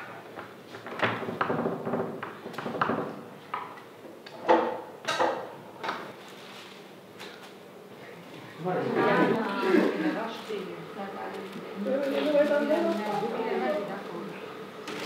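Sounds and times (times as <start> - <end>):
knocks and clatter on table: 0.8 - 3.8.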